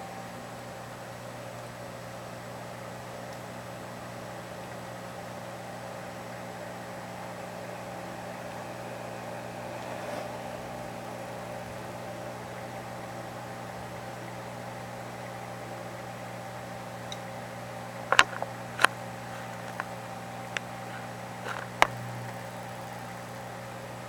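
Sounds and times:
aquarium pump humming and hissing: 0:00.0 - 0:24.0.

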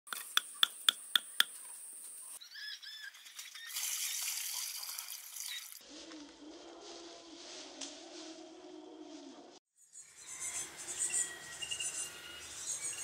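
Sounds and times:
water splashing into pool: 0:03.2 - 0:05.8.

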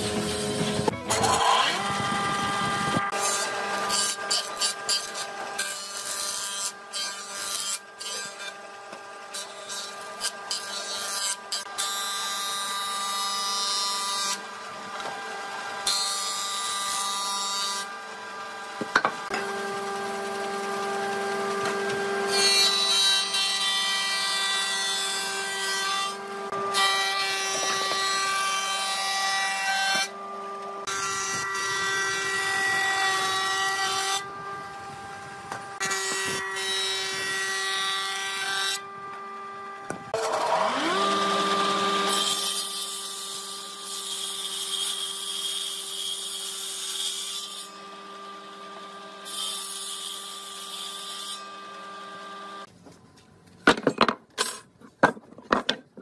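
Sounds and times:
woodworking machine motor whine: 0:00.0 - 0:03.9, 0:17.8 - 0:22.3, 0:29.6 - 0:42.4
board being planed: 0:00.0 - 0:18.0, 0:18.8 - 0:34.3.

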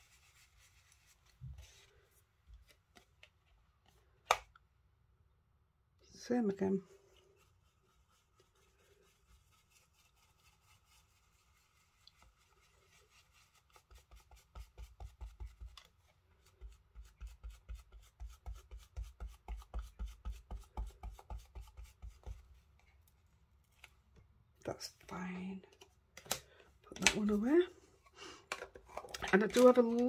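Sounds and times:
brush scrubbing over card: 0:00.0 - 0:02.8, 0:06.8 - 0:23.0.

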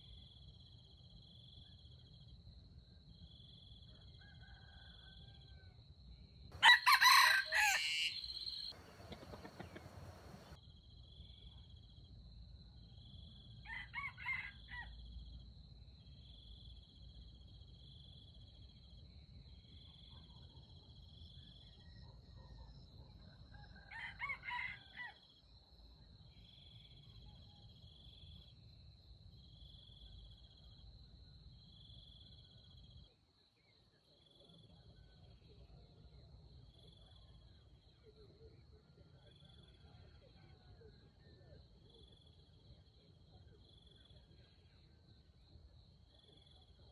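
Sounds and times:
cricket chirps: 0:00.0 - 0:46.9
rooster crowing: 0:06.6 - 0:10.6, 0:13.6 - 0:14.9, 0:23.5 - 0:25.2.

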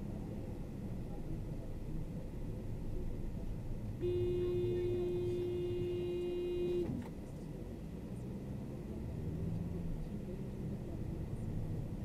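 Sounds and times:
car road and engine rumble: 0:00.0 - 0:12.0
vehicle horn blast: 0:04.0 - 0:07.0.

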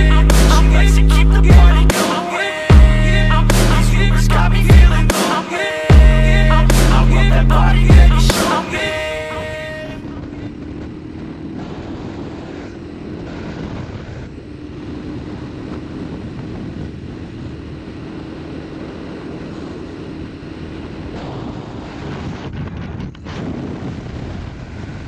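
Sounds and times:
quad engine running: 0:00.0 - 0:05.3, 0:05.9 - 0:23.2
wind noise on microphone: 0:09.4 - 0:25.0.

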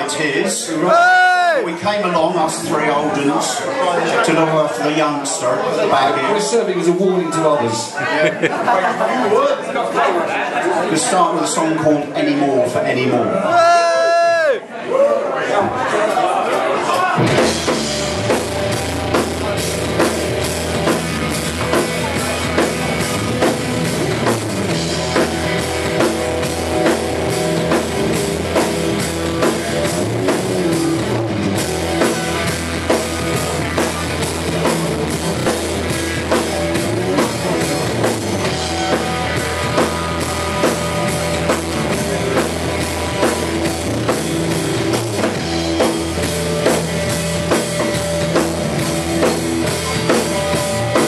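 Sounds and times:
live rock band playing: 0:00.7 - 0:08.6, 0:17.2 - 0:51.0
drum kit steady beat: 0:17.2 - 0:51.0.

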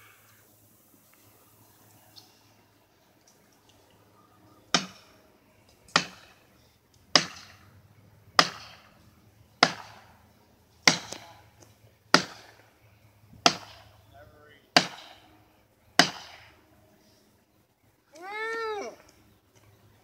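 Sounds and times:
axe striking tree trunk: 0:04.7 - 0:05.0, 0:05.9 - 0:06.4, 0:07.1 - 0:07.6, 0:08.4 - 0:08.9, 0:09.6 - 0:10.1, 0:10.8 - 0:11.4, 0:12.1 - 0:12.6, 0:13.4 - 0:13.9, 0:14.8 - 0:15.2, 0:16.0 - 0:16.5.

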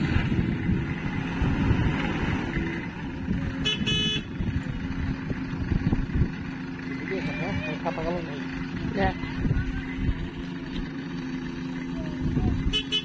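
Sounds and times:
diesel engine running: 0:00.0 - 0:13.0
horn toot: 0:03.6 - 0:04.4, 0:12.6 - 0:13.0.

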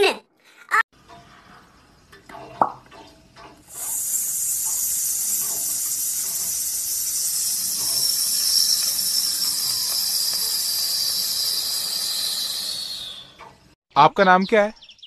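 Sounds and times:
high-pitched hiss: 0:03.7 - 0:13.4.

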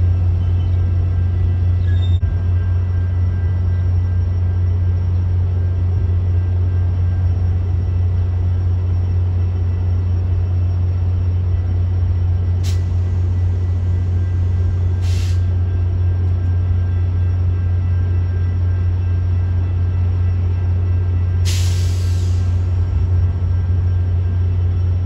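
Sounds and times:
diesel locomotive engine drone: 0:00.0 - 0:25.0
air hissing: 0:15.0 - 0:15.5, 0:21.4 - 0:22.7.

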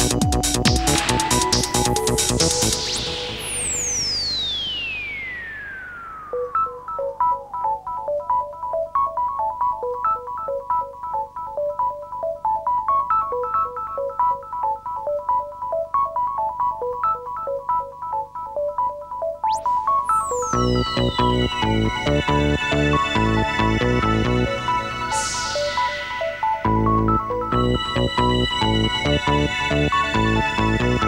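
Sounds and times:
synthesizer repeating bright notes: 0:00.0 - 0:31.0
falling synth swoop: 0:01.0 - 0:06.8, 0:19.5 - 0:31.0.

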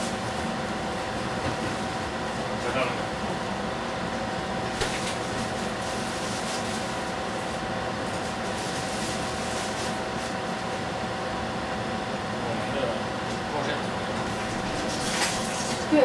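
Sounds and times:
faint constant hum: 0:00.0 - 0:16.0.

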